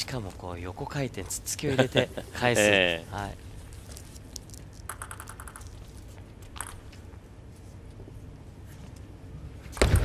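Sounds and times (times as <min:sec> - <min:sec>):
table tennis ball bouncing: 0:04.9 - 0:05.7, 0:06.5 - 0:06.9.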